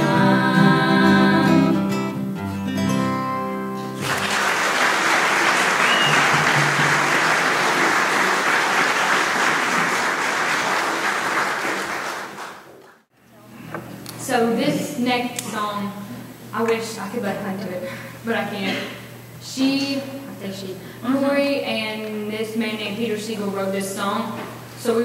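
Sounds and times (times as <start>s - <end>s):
audience applause: 4.0s - 13.0s.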